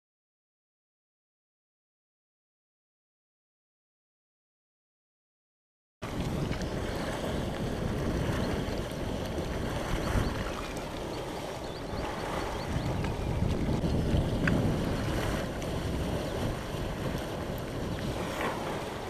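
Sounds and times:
spring water gushing into pool: 0:06.0 - 0:19.0.

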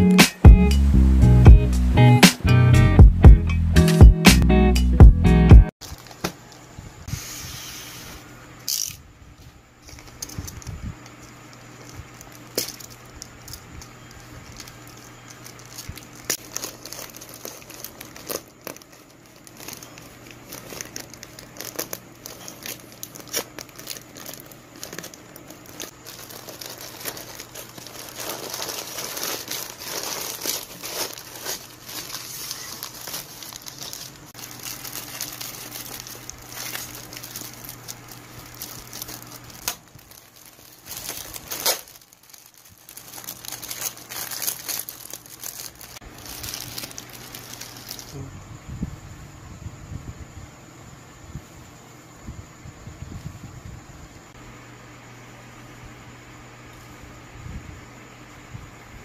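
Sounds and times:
plastic wrapping crinkling: 0:05.8 - 0:06.6, 0:09.8 - 0:48.2
scissors cutting plastic: 0:12.3 - 0:45.8.

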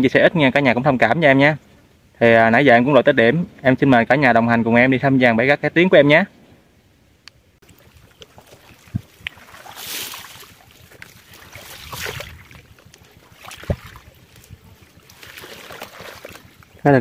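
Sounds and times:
wading through shallow water: 0:07.6 - 0:17.0.

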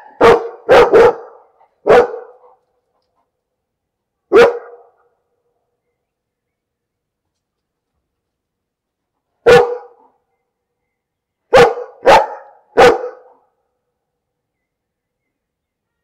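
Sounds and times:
dog barking: 0:00.0 - 0:02.6, 0:04.3 - 0:05.1, 0:09.4 - 0:10.2, 0:11.5 - 0:13.5.

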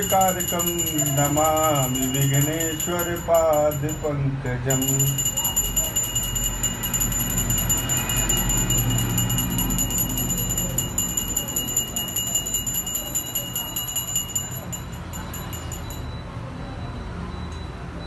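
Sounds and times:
hand bell rung rapidly: 0:00.0 - 0:16.2.

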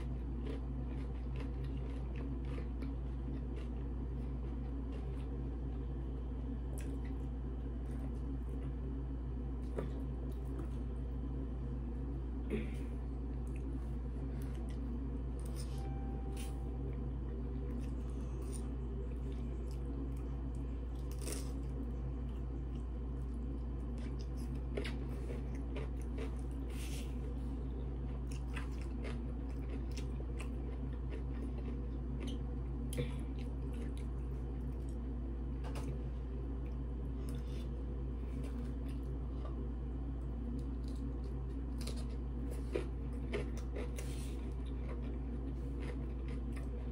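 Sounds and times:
crunching cucumber bites: 0:00.0 - 0:05.4
wet chewing: 0:00.0 - 0:05.4, 0:17.7 - 0:32.5, 0:40.5 - 0:46.9
low hum: 0:00.0 - 0:46.9.

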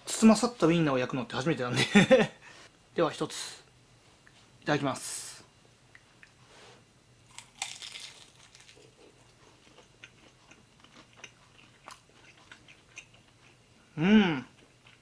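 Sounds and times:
biting into crisp dumpling: 0:07.3 - 0:13.6
chewing with small crunches: 0:07.3 - 0:15.0.

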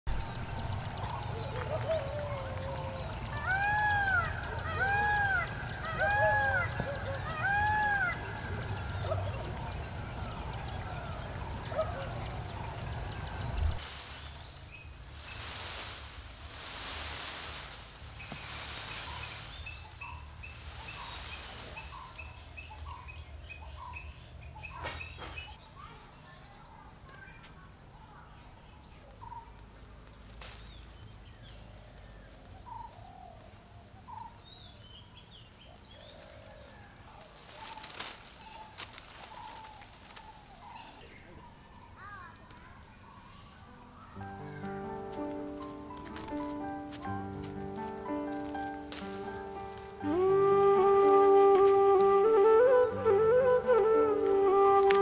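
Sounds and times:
high-pitched insect drone: 0:00.1 - 0:13.8, 0:44.1 - 0:55.0
small birds chirping: 0:00.1 - 0:15.5, 0:18.2 - 0:36.6, 0:37.5 - 0:50.2
bird rising-and-falling calls: 0:00.2 - 0:13.8
rustling: 0:12.1 - 0:19.9, 0:36.2 - 0:41.1, 0:43.9 - 0:55.0.

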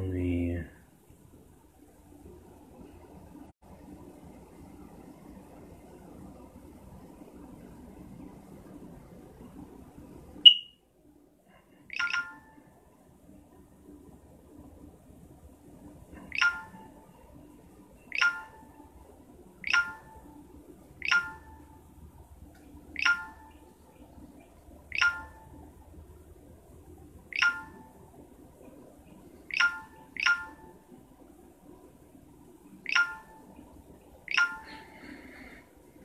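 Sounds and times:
phone notification chirps: 0:10.4 - 0:10.8, 0:11.9 - 0:12.5, 0:16.3 - 0:16.9, 0:18.1 - 0:18.8, 0:19.6 - 0:20.4, 0:21.0 - 0:21.7, 0:23.0 - 0:23.7, 0:24.9 - 0:25.6, 0:27.3 - 0:27.9, 0:29.5 - 0:30.7, 0:32.9 - 0:33.5, 0:34.3 - 0:35.1.

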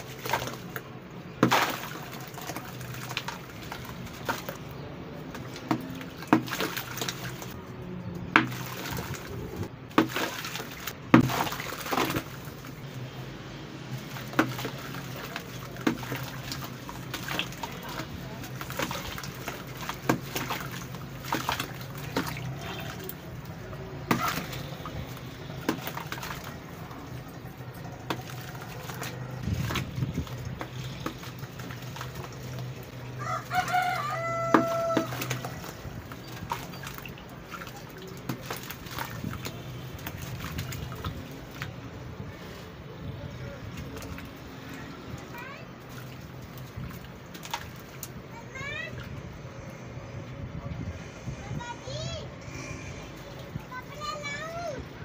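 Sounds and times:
wet brick crunching by hand: 0:00.0 - 0:07.5, 0:08.3 - 0:12.6, 0:14.0 - 0:26.7
water drips and splashes: 0:00.0 - 0:50.5, 0:52.9 - 0:55.0
rooster crowing: 0:33.2 - 0:35.3.

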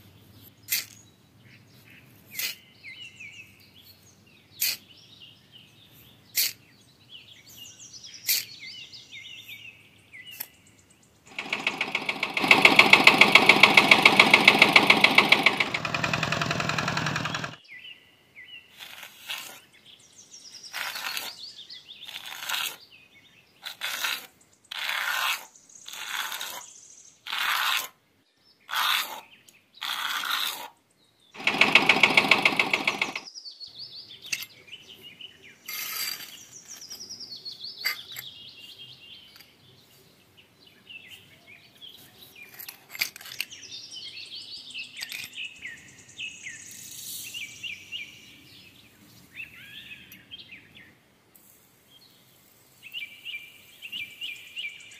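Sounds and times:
birds chirping: 0:00.0 - 0:18.0, 0:31.0 - 0:42.6
hoe scraping cement powder: 0:18.8 - 0:19.7, 0:20.7 - 0:21.4, 0:22.0 - 0:22.8, 0:23.6 - 0:26.6, 0:27.3 - 0:27.9, 0:29.8 - 0:30.7.

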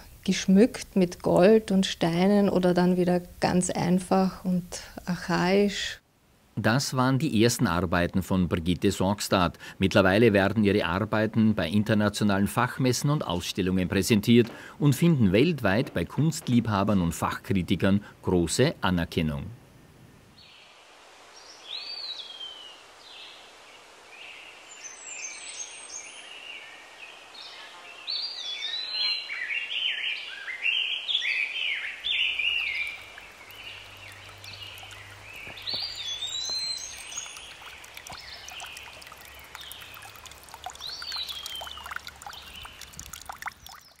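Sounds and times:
water trickling under ice: 0:13.0 - 0:17.0, 0:32.0 - 0:44.0
small birds chirping: 0:21.4 - 0:44.0.

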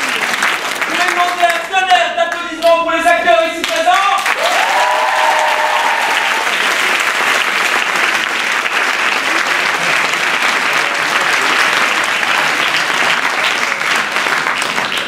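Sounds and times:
audience applauding: 0:00.0 - 0:02.4, 0:03.6 - 0:15.0.

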